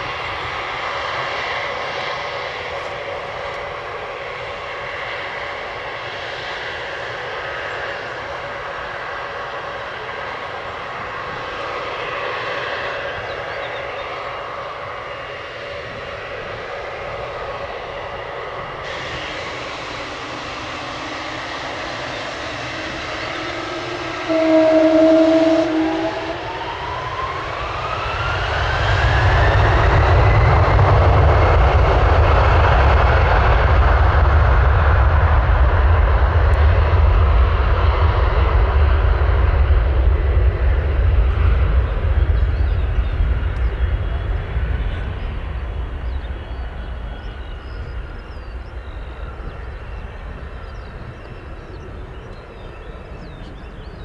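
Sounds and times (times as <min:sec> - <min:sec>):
jet engine whine rising: 0:00.0 - 0:54.0
jet takeoff rumble: 0:00.0 - 0:54.0
loud steady tone: 0:18.9 - 0:27.6.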